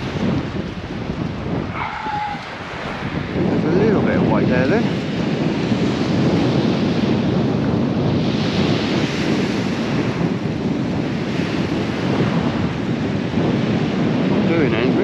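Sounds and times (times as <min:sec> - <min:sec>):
surf on shingle beach: 0:00.0 - 0:15.0
wind buffeting microphone: 0:00.0 - 0:15.0.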